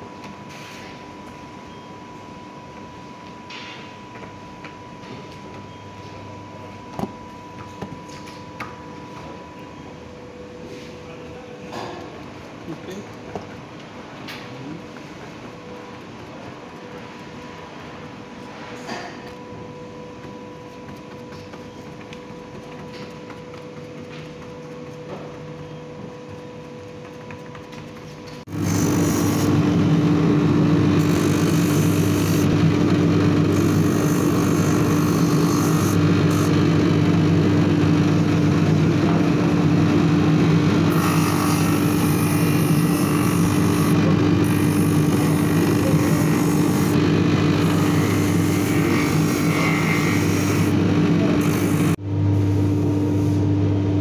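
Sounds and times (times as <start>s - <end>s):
workshop machine hum: 0.0s - 54.0s
grinding wheel running: 22.9s - 52.0s.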